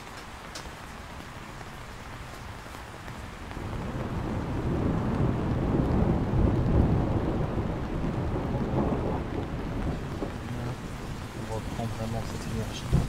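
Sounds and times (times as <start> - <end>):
steady rain: 0.0 - 13.0
thunder rumbling: 3.3 - 13.0.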